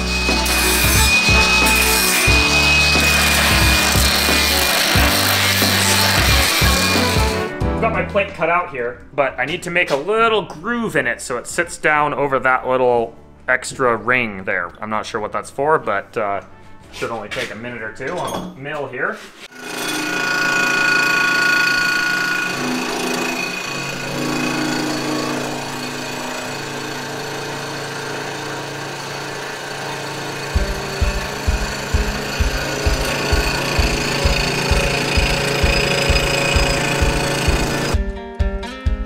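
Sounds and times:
music with thumping beat: 0:00.0 - 0:07.8, 0:30.6 - 0:39.0
milling machine whine and chatter: 0:30.4 - 0:37.9.

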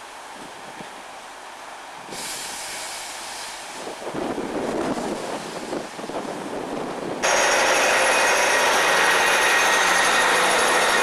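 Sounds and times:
train engine and wheels: 0:00.0 - 0:11.0
wind buffeting microphone: 0:03.8 - 0:11.0.

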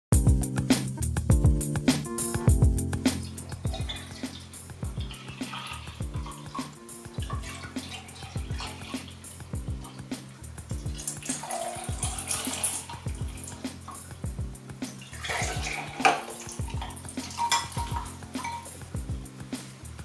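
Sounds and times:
background music with beat: 0:00.1 - 0:20.0
milk pouring into glass: 0:11.0 - 0:13.0, 0:15.2 - 0:18.6.

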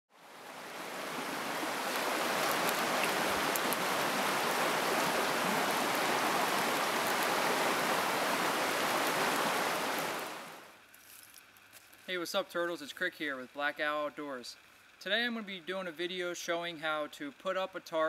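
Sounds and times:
creek water rushing over rapids: 0:00.1 - 0:10.8.

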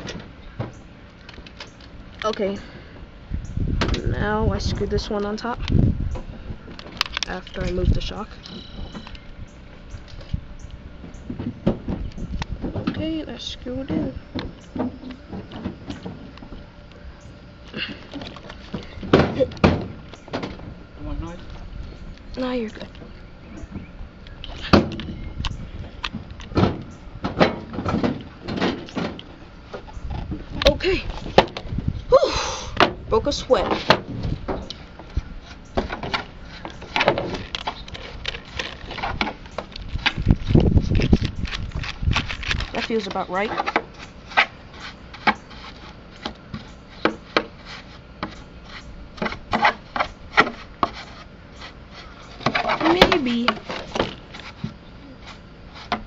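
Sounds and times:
plastic rubbing: 0:33.2 - 0:56.0.

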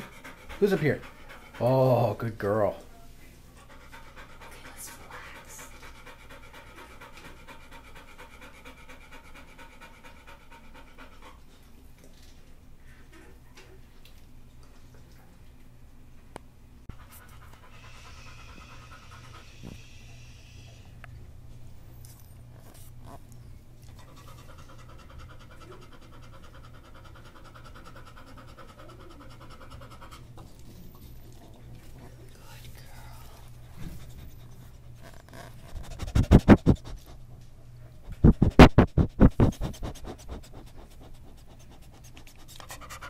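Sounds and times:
dog panting rapidly: 0:00.0 - 0:02.6, 0:03.5 - 0:11.7, 0:16.9 - 0:19.9, 0:23.9 - 0:32.5, 0:33.2 - 0:43.0.

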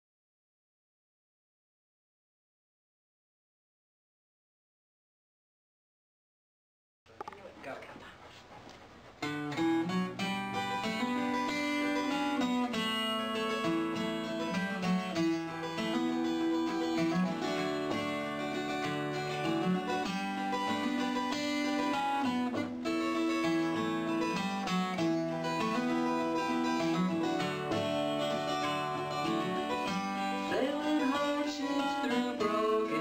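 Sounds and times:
acoustic guitar picking: 0:09.0 - 0:33.0.

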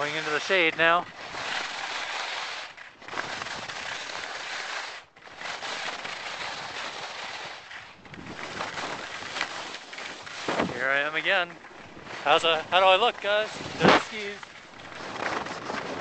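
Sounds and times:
skis scraping over snow: 0:00.0 - 0:16.0
wind on microphone: 0:08.0 - 0:09.2, 0:10.3 - 0:11.1, 0:11.9 - 0:16.0.

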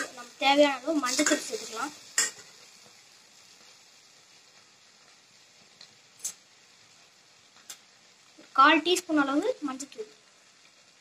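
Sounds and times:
faint sizzle: 0:00.0 - 0:11.0
metal spatula clanking on pan: 0:02.2 - 0:02.4.

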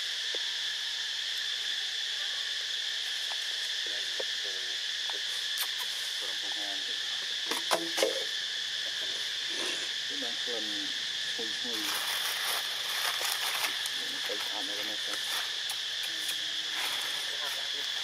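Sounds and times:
high-pitched insect drone: 0:00.0 - 0:18.0.

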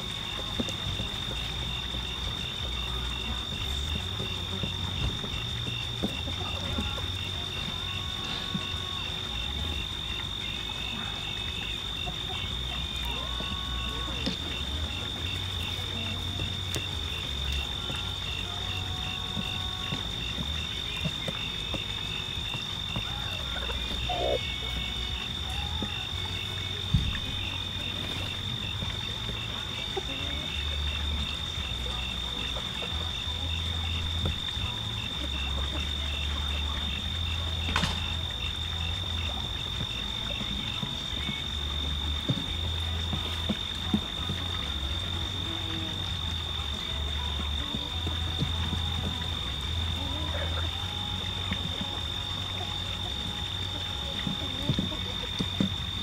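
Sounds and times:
high-pitched insect drone: 0:00.0 - 0:47.9.

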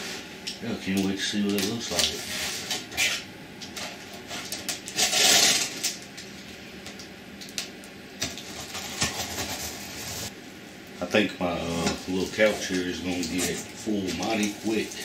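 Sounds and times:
packing tape tearing: 0:03.8 - 0:06.0
cardboard scraping and rustling: 0:08.2 - 0:10.3.

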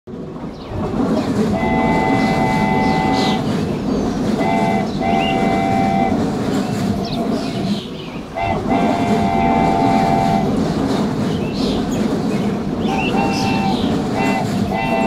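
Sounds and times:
rumble of running train: 0:00.1 - 0:15.0
train horn blasts: 0:01.5 - 0:03.6, 0:04.4 - 0:06.3, 0:08.3 - 0:10.8, 0:12.9 - 0:15.0.

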